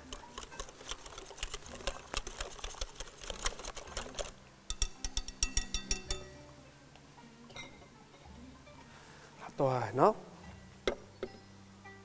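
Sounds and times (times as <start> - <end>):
whisk tapping glass bowl: 0.0 - 6.4.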